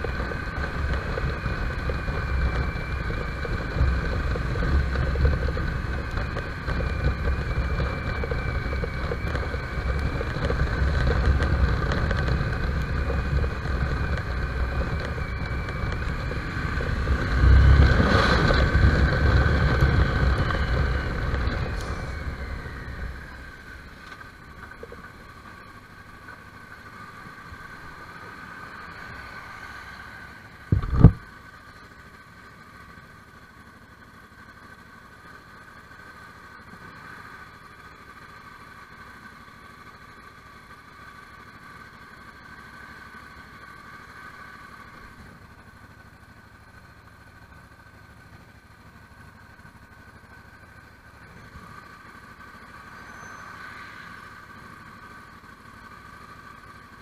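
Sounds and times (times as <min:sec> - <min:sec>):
motorcycle engine rumble: 0:00.0 - 0:57.0
short thump: 0:30.7 - 0:31.2
wind noise on microphone: 0:30.7 - 0:31.2.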